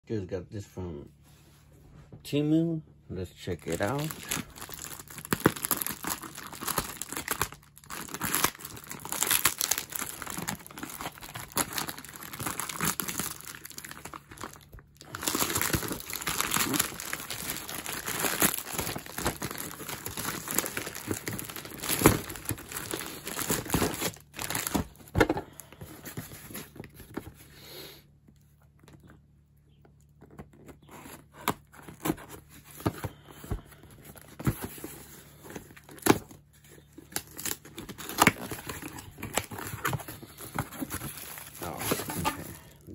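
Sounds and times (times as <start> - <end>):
plastic bag crinkling and tearing: 3.6 - 27.2, 34.0 - 42.9.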